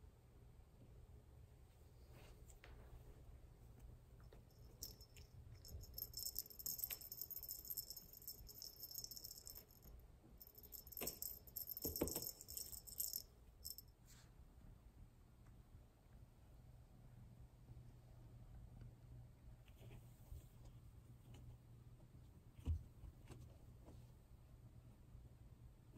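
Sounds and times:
cat toy jingling: 4.5 - 13.8.

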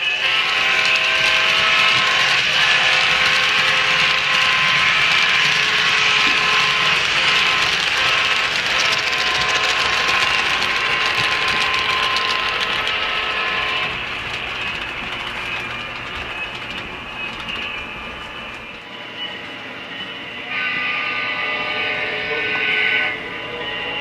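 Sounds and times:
model train wheels clicking: 0.0 - 18.8.

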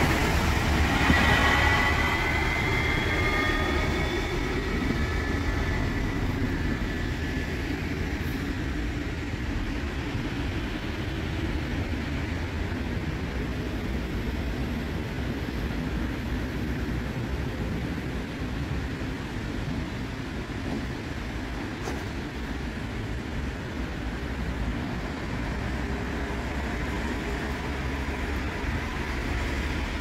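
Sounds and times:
multi-tone whine: 0.0 - 8.1
light-rail train passing: 0.0 - 30.0.

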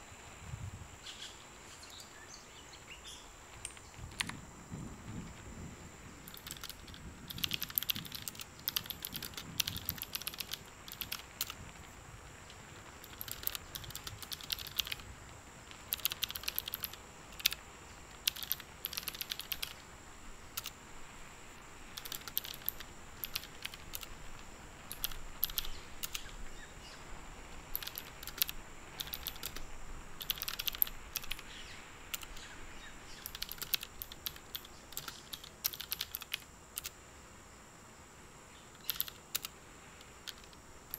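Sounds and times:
faint high-pitched whine: 0.0 - 40.9
typing on a keyboard: 3.6 - 4.4, 6.2 - 12.0, 12.7 - 19.8, 20.5 - 20.8, 21.9 - 26.4, 27.7 - 29.6, 30.2 - 31.5, 32.1 - 32.5, 33.2 - 37.0, 38.8 - 40.9.

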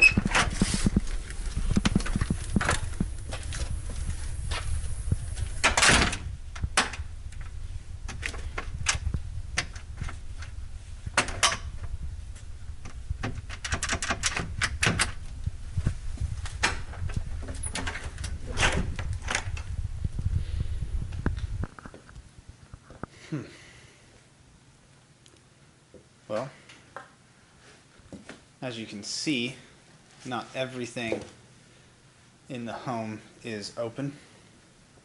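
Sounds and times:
steady low rumble: 0.0 - 23.1
door handle and latch clicking: 12.8 - 15.2.

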